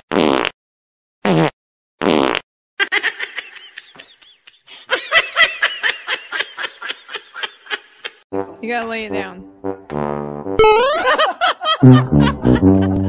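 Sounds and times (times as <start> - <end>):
fart sounds: 0.0 - 0.6, 1.2 - 2.4, 9.7 - 11.0, 11.8 - 13.0
person laughing: 2.8 - 8.2, 10.8 - 13.0.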